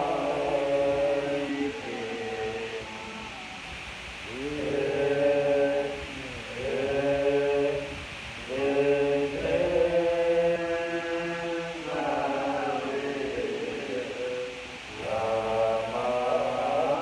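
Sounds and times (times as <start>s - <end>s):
group chanting in unison: 0.0s - 17.0s.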